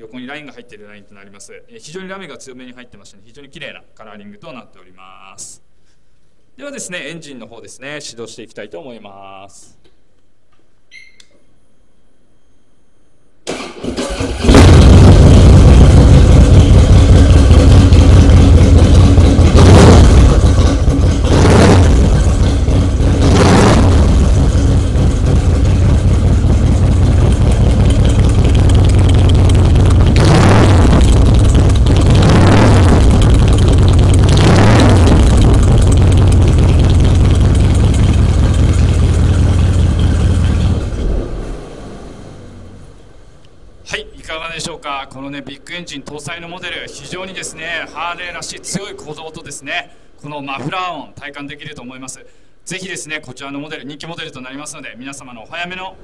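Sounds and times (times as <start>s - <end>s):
motorcycle starter cranking: 13.5s - 41.2s
motorcycle engine idling and revving: 14.1s - 43.4s.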